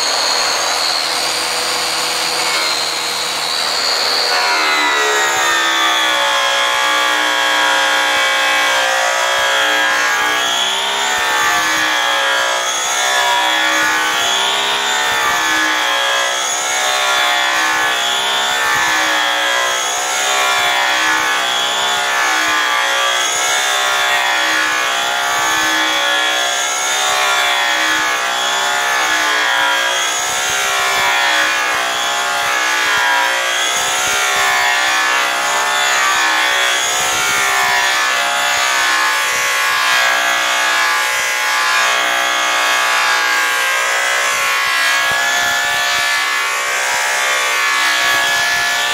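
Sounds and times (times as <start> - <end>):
polisher motors whining: 0.0 - 11.4.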